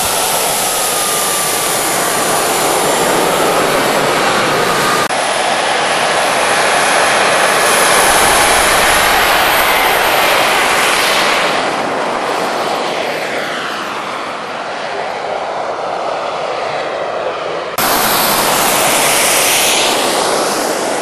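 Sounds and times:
model jet engines whining: 0.0 - 21.0.

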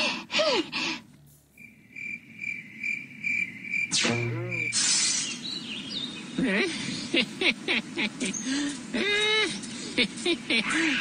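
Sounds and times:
cricket chirping: 1.5 - 4.8.

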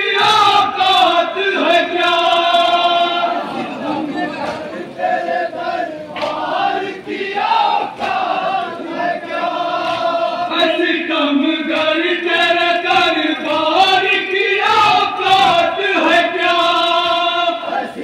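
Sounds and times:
men chanting in unison: 0.0 - 18.0
chest-beating slaps: 6.1 - 6.4.

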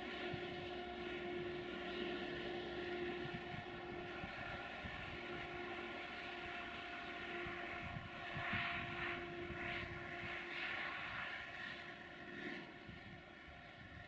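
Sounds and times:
distant locomotive engine drone: 0.0 - 14.0.

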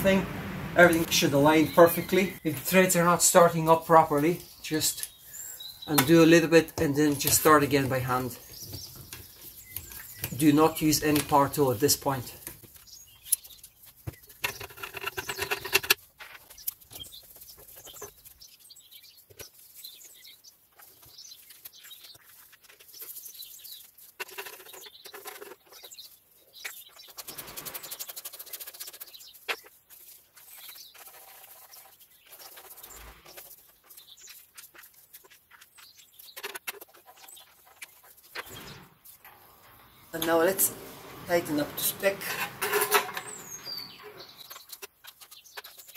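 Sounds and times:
socket extension rattling on metal: 42.2 - 43.6.

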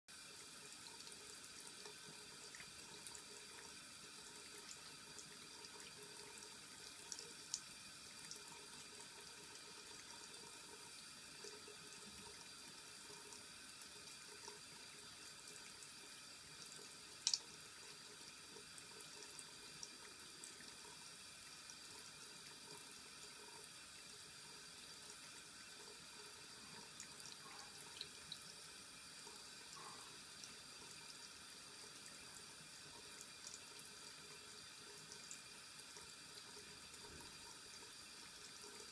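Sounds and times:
tap water trickling into basin: 16.6 - 24.1.

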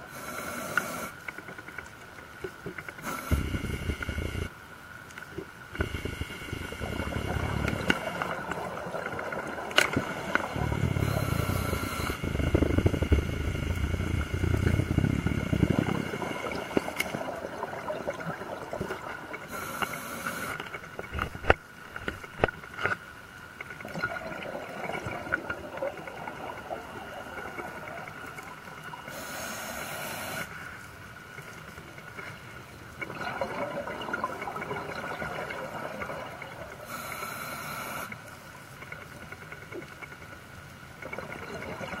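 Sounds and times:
regulator hiss on inhalation: 0.0 - 1.2, 3.0 - 4.5, 10.1 - 17.0, 19.5 - 20.6, 29.1 - 30.6, 36.8 - 38.2
exhaled bubbles rumbling: 5.7 - 19.5, 23.8 - 29.1, 33.0 - 36.8.

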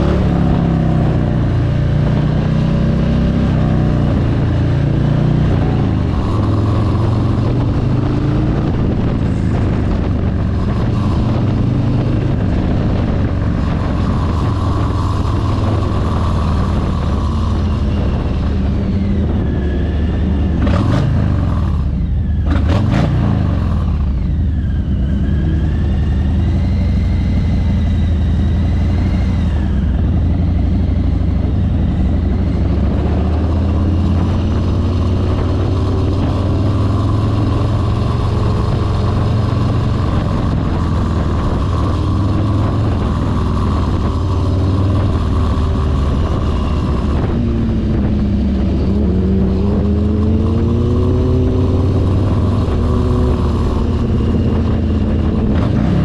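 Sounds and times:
motorcycle engine rumbling: 0.0 - 56.0
road and wind noise: 0.0 - 56.0.

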